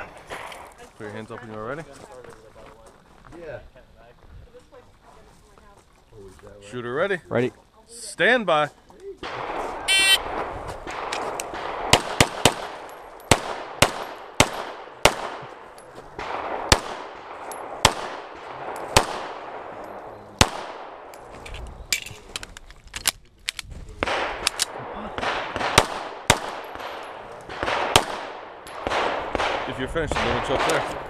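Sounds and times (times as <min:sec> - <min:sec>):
pistol shots echoing: 0:09.2 - 0:21.2, 0:24.0 - 0:31.0.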